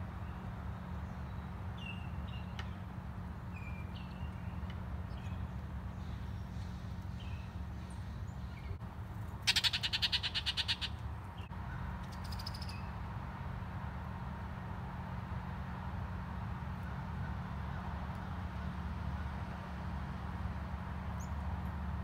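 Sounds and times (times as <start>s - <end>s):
birds chirping: 0.2s - 8.8s, 9.4s - 13.0s
rapid rattling bird call: 9.4s - 11.0s, 12.0s - 12.8s.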